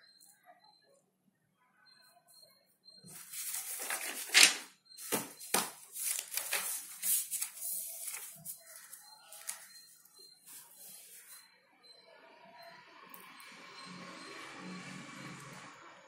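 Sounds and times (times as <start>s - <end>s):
paper rustling and crinkling: 3.1s - 9.7s.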